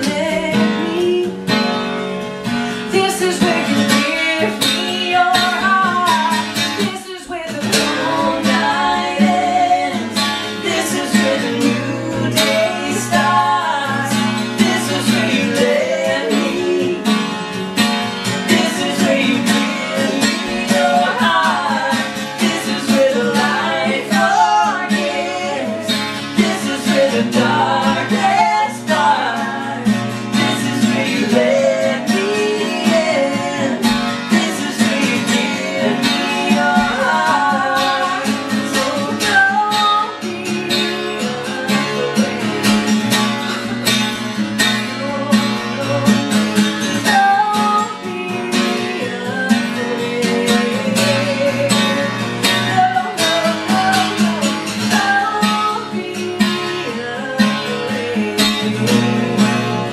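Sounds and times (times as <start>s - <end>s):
man and woman singing: 0.0s - 1.7s, 2.4s - 59.9s
strummed acoustic guitar: 0.0s - 59.9s.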